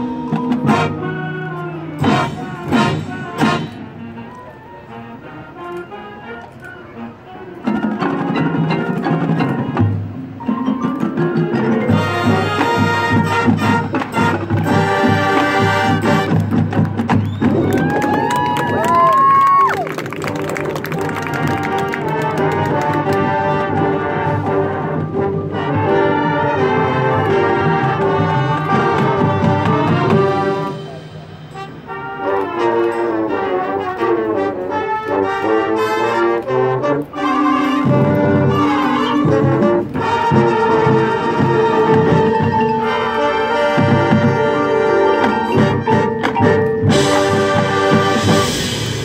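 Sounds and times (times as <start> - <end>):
marching band playing: 0.0 - 49.0.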